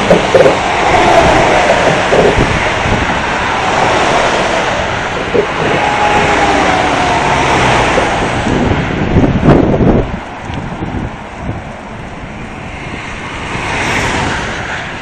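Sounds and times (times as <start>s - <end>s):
motorway traffic: 0.0s - 15.0s
wind on phone microphone: 0.0s - 15.0s.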